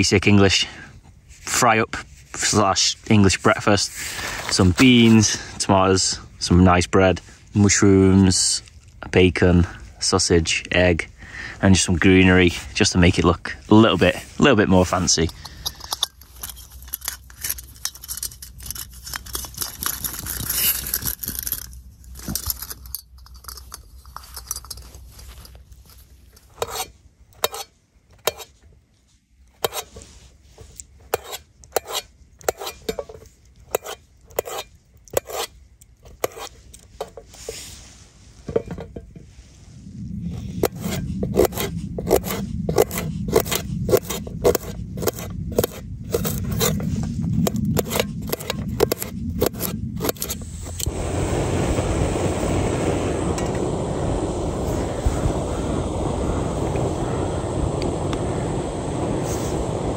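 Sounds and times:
low steady rumble: 35.7 - 59.9.

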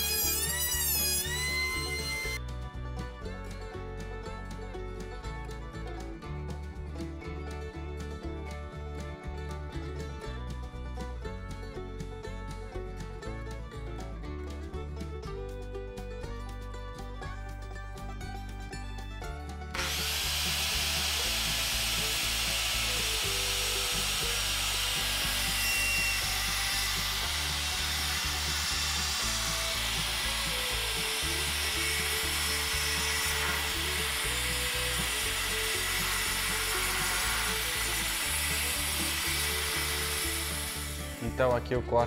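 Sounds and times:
circular saw cutting wood: 0.0 - 2.6, 19.7 - 42.0
background music: 0.0 - 42.0.

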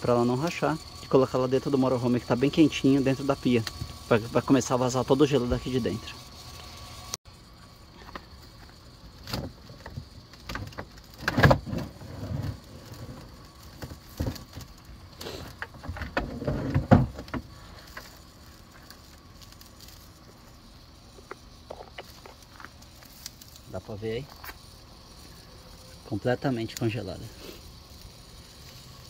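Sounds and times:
water hose knocks and thumps: 13.8 - 14.6, 15.6 - 17.5.

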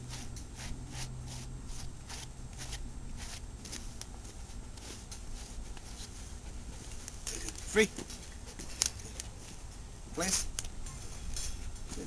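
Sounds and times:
brush swishing through dog fur: 0.0 - 7.0.

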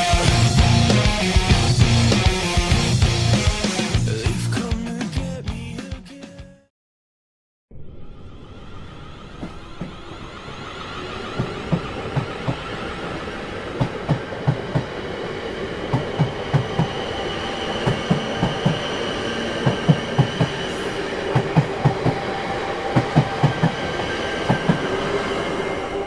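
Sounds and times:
steady train rumble: 0.0 - 4.2, 8.0 - 26.0
train wheels clacking over rail joints: 15.8 - 17.0, 17.8 - 19.0, 19.6 - 22.2.

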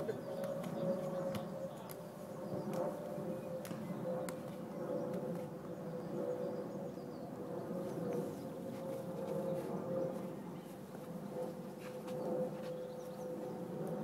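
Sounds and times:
football taps on foot: 0.4 - 2.0.

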